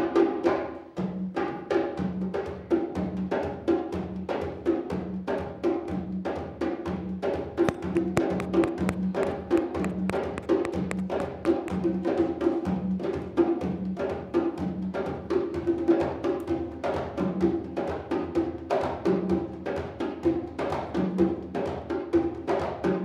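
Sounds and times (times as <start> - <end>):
hand drums playing rhythm: 0.0 - 23.0.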